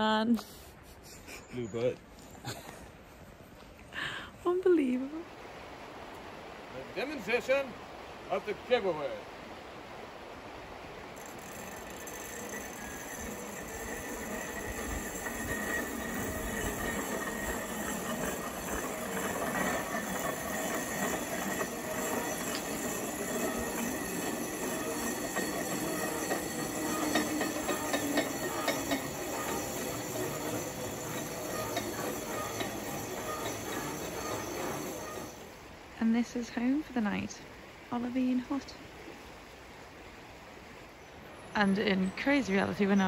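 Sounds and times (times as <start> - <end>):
pulley wheels whining on cable: 11.2 - 35.7.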